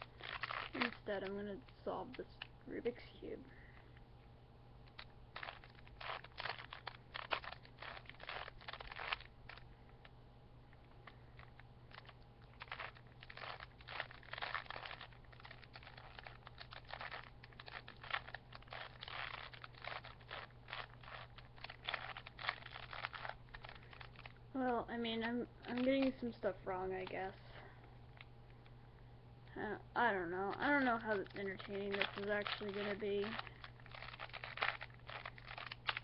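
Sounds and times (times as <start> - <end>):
puzzle cube clicking: 4.9 - 9.6, 11.4 - 24.3, 30.5 - 36.0.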